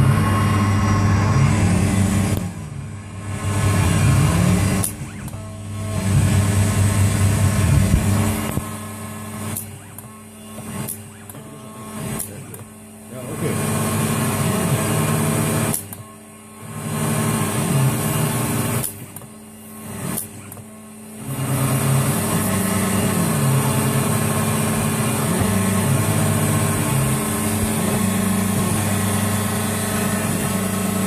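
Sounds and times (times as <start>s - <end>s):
low tones shifting in pitch: 0.0s - 8.6s
engraving machine cutting metal: 0.0s - 31.0s.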